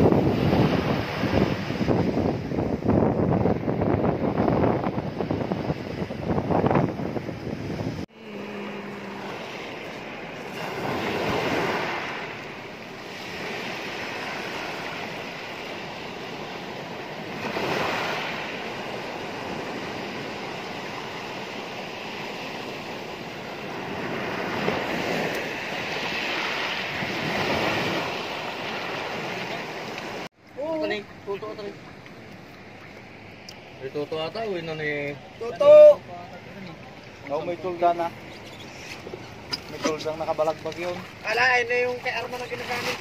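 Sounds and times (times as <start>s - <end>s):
waves breaking on pebble beach: 8.7s - 30.8s, 39.9s - 43.0s.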